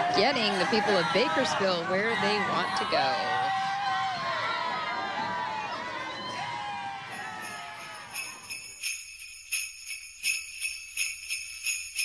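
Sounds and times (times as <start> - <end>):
crowd noise: 0.0 - 8.8
jingle bells shaken: 7.1 - 12.0.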